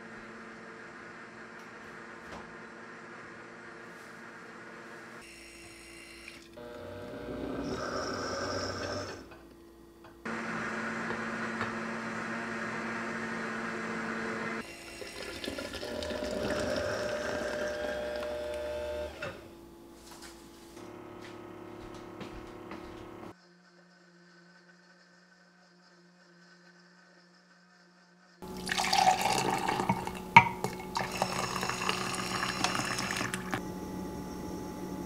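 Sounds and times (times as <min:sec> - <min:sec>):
blender motor whirring: 0:05.2 - 0:09.4, 0:10.3 - 0:19.5, 0:28.4 - 0:35.0.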